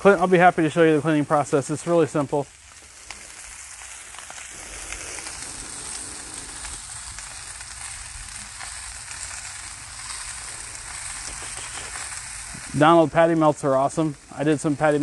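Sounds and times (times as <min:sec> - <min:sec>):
steaks sizzling on a griddle: 0:00.0 - 0:15.0
fat popping: 0:02.7 - 0:12.7.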